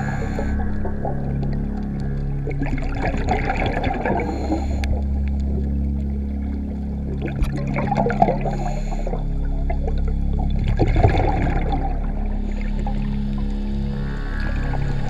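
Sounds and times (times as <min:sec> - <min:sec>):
ambient background music: 0:00.0 - 0:15.0
underwater exhaust bubbles: 0:00.0 - 0:15.0.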